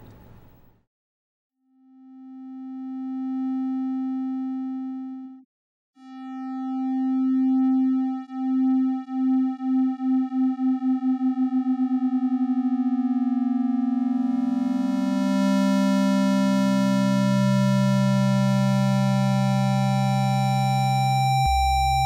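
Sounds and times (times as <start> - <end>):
buzzy synthesized tone: 6.1 - 22.0.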